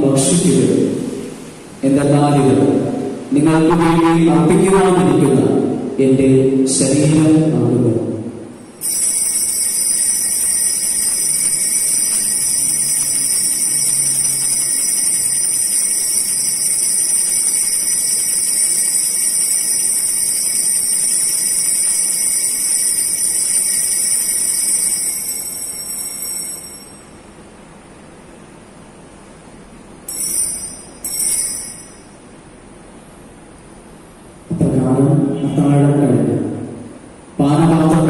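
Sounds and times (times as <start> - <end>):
high-pitched altar bell ringing: 8.6 - 27.4, 30.0 - 32.4.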